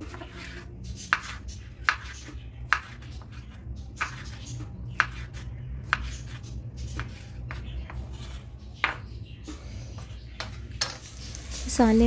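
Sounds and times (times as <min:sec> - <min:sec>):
knife chopping on wooden board: 0:00.1 - 0:09.1.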